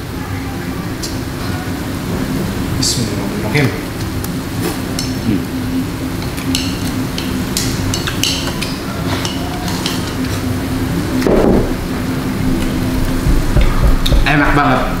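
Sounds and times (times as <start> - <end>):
steady low hum: 0.0 - 15.0
chopsticks and bowls clicking: 6.2 - 10.5.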